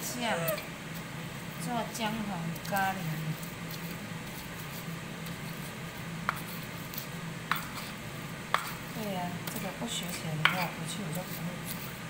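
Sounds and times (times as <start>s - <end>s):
low steady hum: 0.0s - 12.0s
stone pestle grinding: 2.6s - 12.0s.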